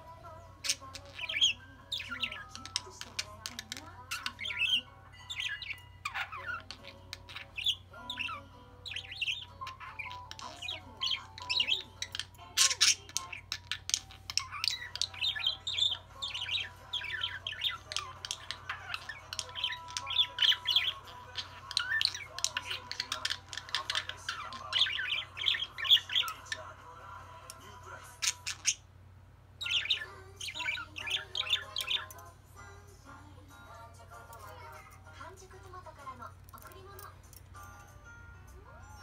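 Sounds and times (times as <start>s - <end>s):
budgerigars chattering: 0.6s - 26.8s, 28.2s - 28.8s, 29.6s - 32.1s.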